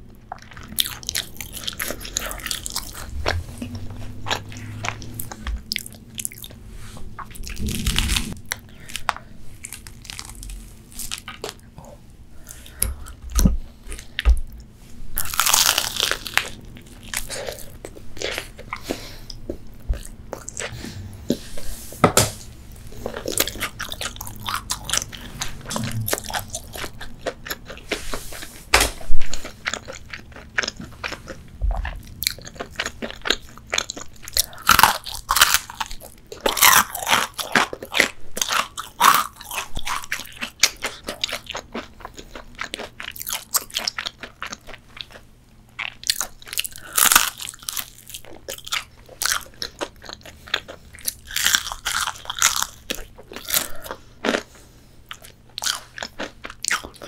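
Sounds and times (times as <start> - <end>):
chewing: 0.1 - 6.6, 22.9 - 57.0
crunching bites of fried chicken: 45.8 - 54.5.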